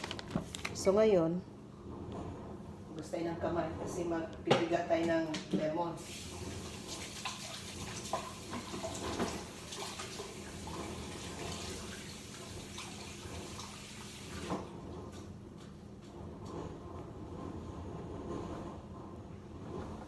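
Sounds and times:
faucet running into sink: 0:06.0 - 0:14.7.

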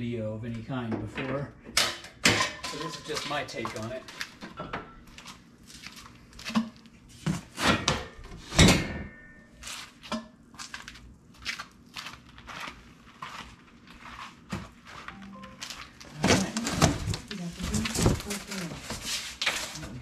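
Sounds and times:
cardboard rustling and scraping: 0:12.0 - 0:20.0.

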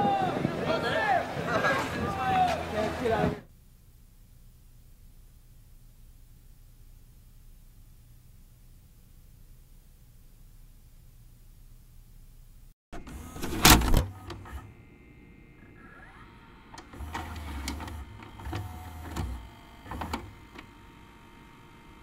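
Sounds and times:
mechanical whirs: 0:13.0 - 0:22.0
mechanical clicks: 0:16.7 - 0:20.8.

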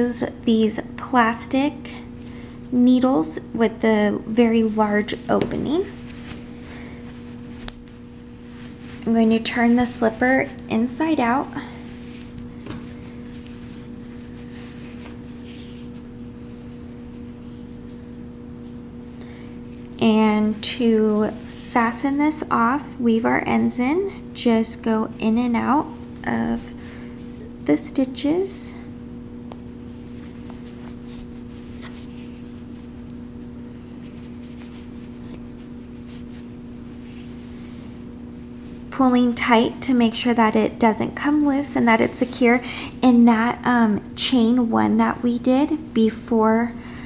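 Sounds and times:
steady low hum: 0:00.0 - 0:47.0
yarn rustling: 0:04.2 - 0:20.6, 0:29.8 - 0:39.0.

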